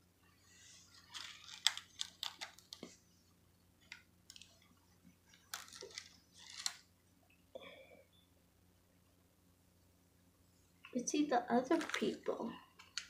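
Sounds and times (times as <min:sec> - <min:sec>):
plastic toy rustling: 0:00.6 - 0:03.0, 0:05.3 - 0:06.9, 0:11.6 - 0:13.0.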